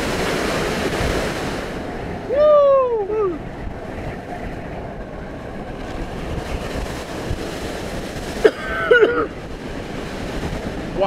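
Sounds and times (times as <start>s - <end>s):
vehicle road noise: 0.0s - 11.0s
wind rushing over microphone: 0.0s - 11.0s.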